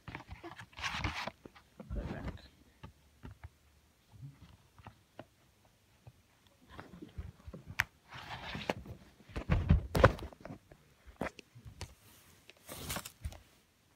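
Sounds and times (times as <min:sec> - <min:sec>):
short rustle: 0:11.9 - 0:13.6.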